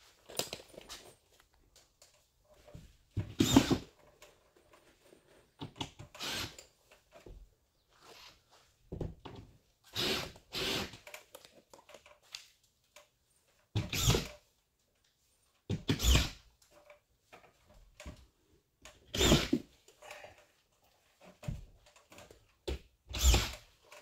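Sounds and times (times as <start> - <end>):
screw gun driving screws: 3.3 - 4.0, 5.8 - 6.8, 9.9 - 11.4, 13.8 - 14.4, 15.8 - 16.4, 19.1 - 19.7, 23.1 - 24.0.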